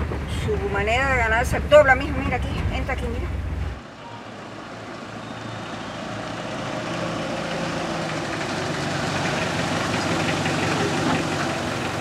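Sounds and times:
car engine approaching: 0.0s - 12.0s.

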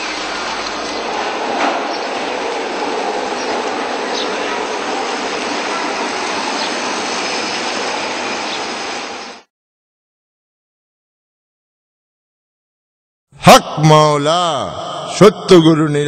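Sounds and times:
road noise: 0.0s - 9.5s.

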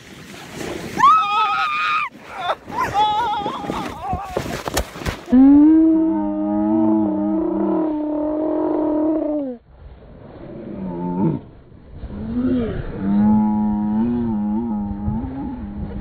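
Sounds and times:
woman and man screaming: 1.0s - 3.8s.

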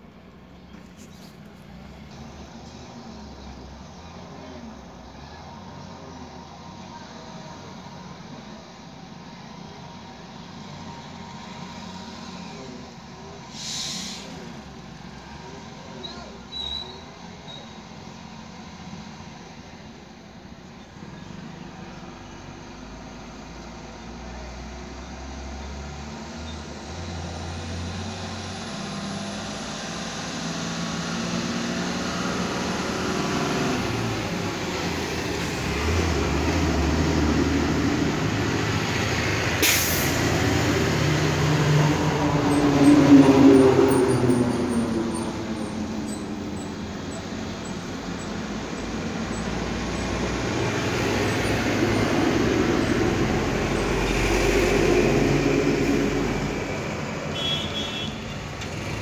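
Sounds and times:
vehicle engine rumbling: 0.0s - 59.0s.

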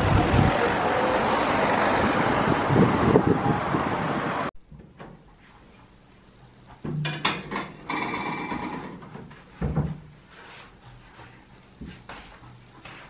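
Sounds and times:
wind buffeting microphone: 0.0s - 1.0s, 1.8s - 4.5s
low rumble gusts: 0.0s - 4.5s
street noise: 0.0s - 4.5s.

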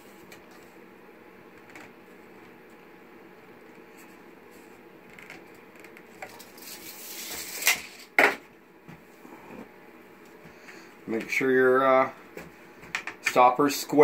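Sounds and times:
faint room hum: 0.0s - 14.0s.

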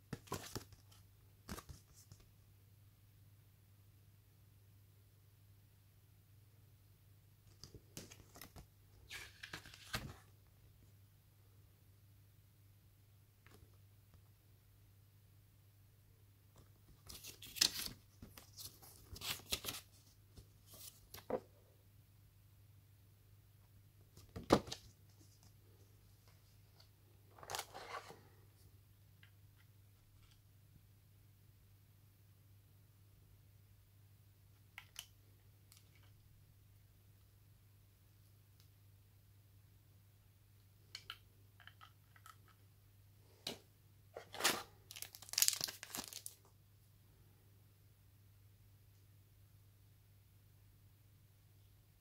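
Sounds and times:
cardboard and plastic rustling: 44.2s - 46.4s.

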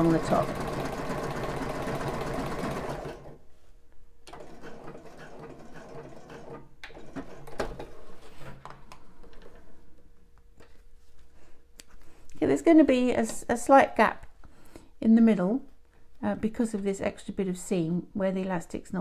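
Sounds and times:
sewing machine stitching: 0.0s - 3.4s, 4.3s - 7.6s.

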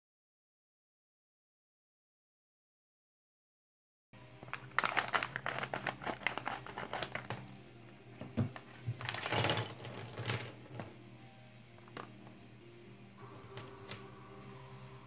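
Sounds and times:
plastic bag crinkling: 4.4s - 7.6s, 8.6s - 10.8s
scissors snipping foil bag: 4.5s - 7.6s.

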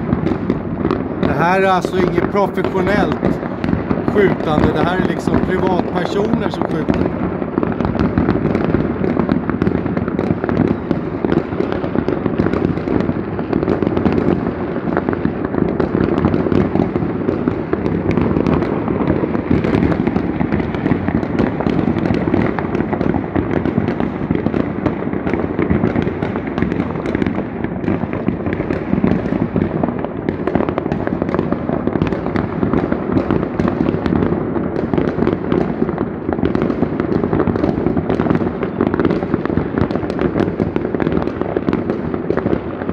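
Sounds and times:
fireworks bursting and crackling: 0.0s - 42.9s.

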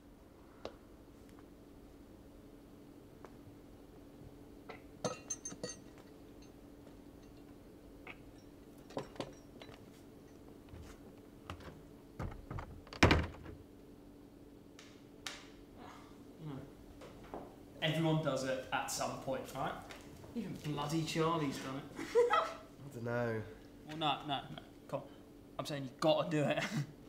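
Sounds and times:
steady low hum: 0.0s - 27.0s
bright clinks: 5.0s - 10.5s.

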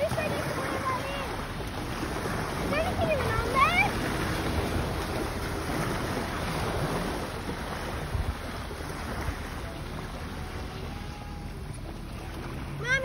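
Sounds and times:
small waves lapping: 0.0s - 13.0s
wind buffeting microphone: 0.0s - 13.0s.

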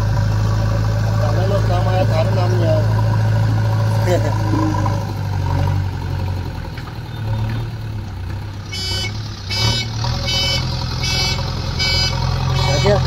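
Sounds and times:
diesel engine under load: 0.0s - 13.0s
reversing alarm beeping: 8.7s - 13.0s.

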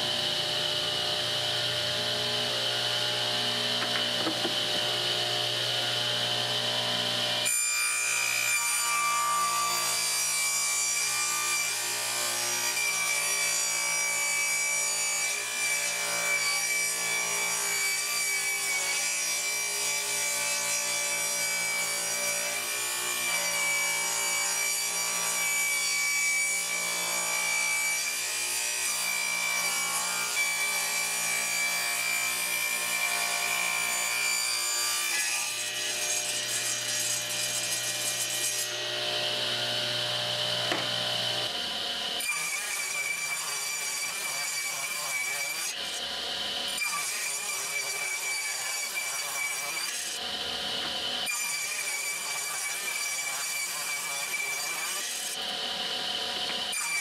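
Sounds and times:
radial arm saw whining: 0.0s - 7.5s, 35.4s - 57.0s.

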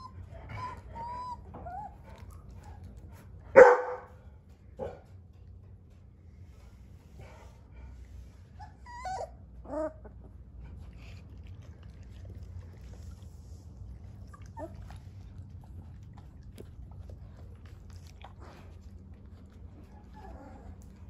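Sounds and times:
puppies whining: 0.0s - 3.0s, 8.5s - 10.4s, 13.9s - 21.0s
low hum: 0.0s - 21.0s.

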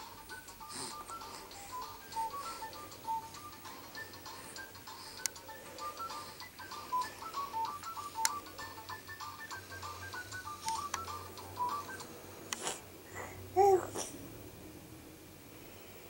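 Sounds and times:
toy beeping tune: 0.3s - 12.1s.

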